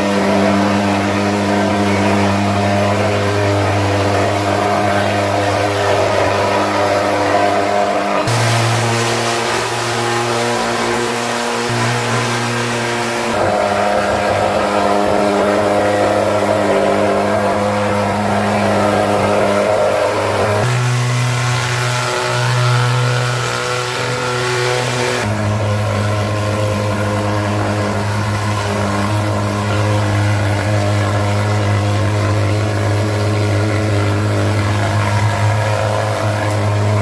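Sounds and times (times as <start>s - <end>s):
fogging machine droning: 0.0s - 37.0s.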